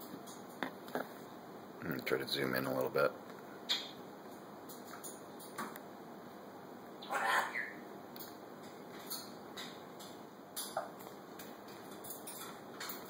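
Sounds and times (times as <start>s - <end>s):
parrot squawk: 7.0s - 7.8s
parrot whistle: 7.0s - 7.8s.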